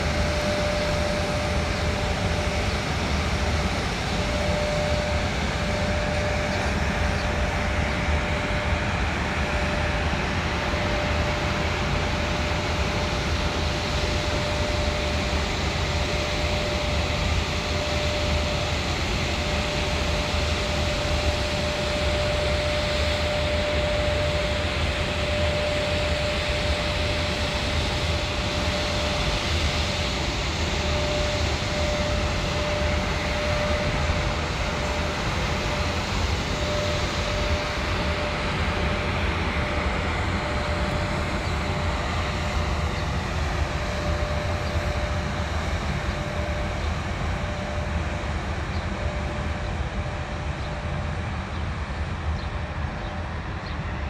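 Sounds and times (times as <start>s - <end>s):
freight train wheels rumbling on rails: 0.0s - 8.6s, 19.4s - 48.0s
high-pitched electric hum: 0.0s - 54.0s.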